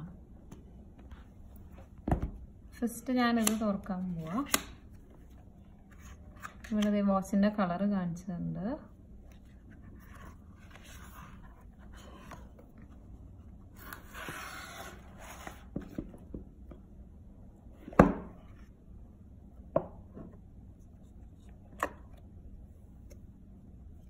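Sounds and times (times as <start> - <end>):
cardboard rubbing and sliding: 13.8 - 15.8.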